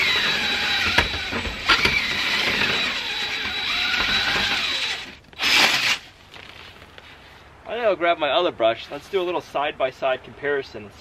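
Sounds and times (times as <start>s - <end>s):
cordless drill spinning: 0.0s - 6.0s.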